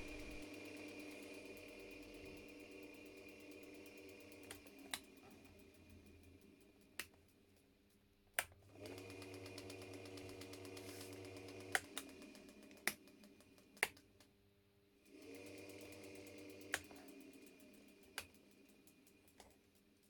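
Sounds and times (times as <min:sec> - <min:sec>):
washing machine motor humming: 0:00.0 - 0:00.4.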